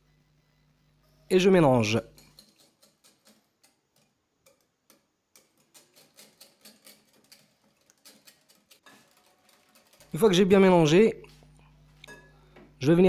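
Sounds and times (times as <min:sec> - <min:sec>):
whisk clicking against glass bowl: 0:02.1 - 0:10.6.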